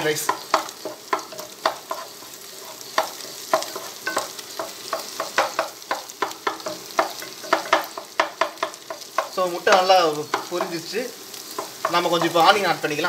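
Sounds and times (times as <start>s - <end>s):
egg sizzling in oil: 0.0s - 13.0s
wooden spatula scraping a pot: 0.2s - 8.0s.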